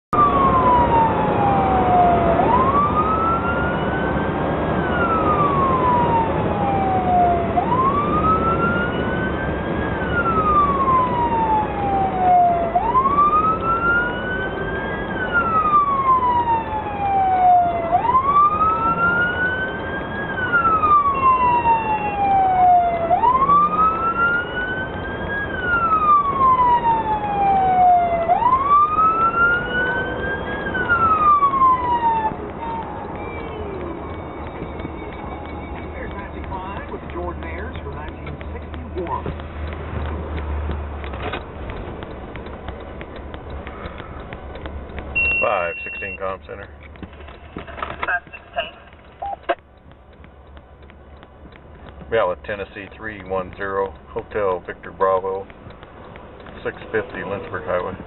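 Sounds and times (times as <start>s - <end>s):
road and engine noise: 0.0s - 58.0s
police siren wailing: 0.1s - 39.4s, 45.1s - 49.8s, 51.2s - 58.0s.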